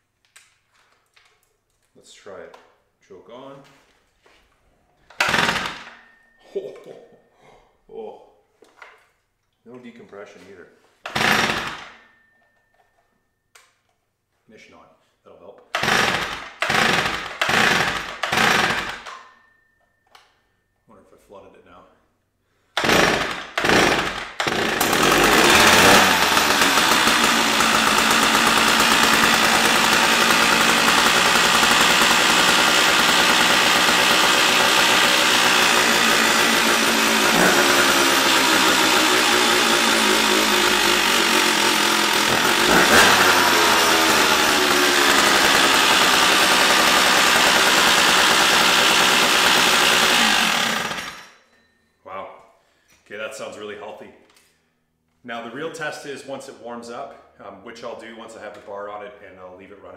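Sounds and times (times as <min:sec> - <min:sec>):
chainsaw engine running: 0:05.2 - 0:06.0, 0:11.1 - 0:11.9, 0:15.8 - 0:19.1, 0:22.8 - 0:51.4
chainsaw throttle blips: 0:05.2 - 0:06.0, 0:11.1 - 0:11.9, 0:15.8 - 0:19.2, 0:22.8 - 0:51.3.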